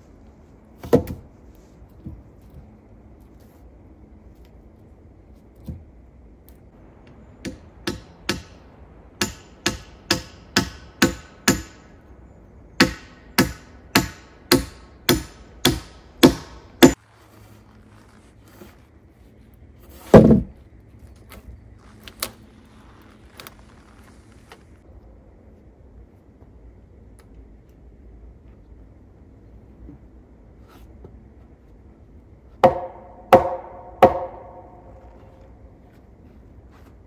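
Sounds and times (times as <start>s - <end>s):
hand tool striking log: 9.2s - 11.9s, 12.8s - 17.0s, 32.6s - 34.8s.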